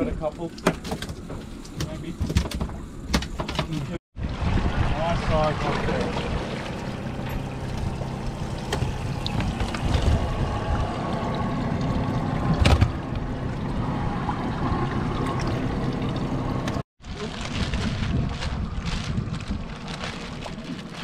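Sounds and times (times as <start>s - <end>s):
water sloshing around boat: 0.0s - 17.5s, 19.5s - 21.0s
wind on microphone: 4.2s - 5.8s, 7.8s - 11.3s, 17.0s - 20.6s
outboard motor idling: 5.6s - 16.8s.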